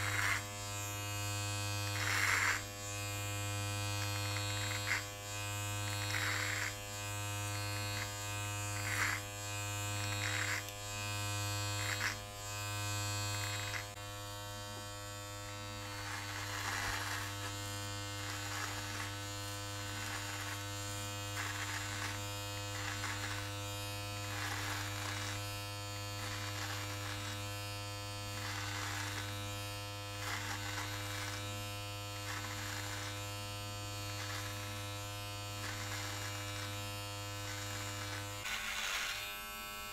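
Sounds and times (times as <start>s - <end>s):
blades cutting hair rasp: 0.0s - 39.9s
electric trimmer buzzing: 0.0s - 39.9s.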